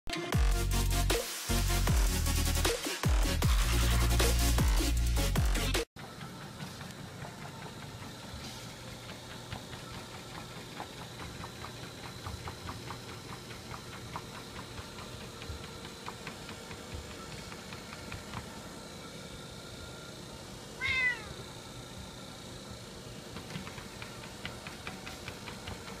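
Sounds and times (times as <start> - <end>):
electronic dance music: 0.1 - 5.9
treadmill motor hum: 6.0 - 26.0.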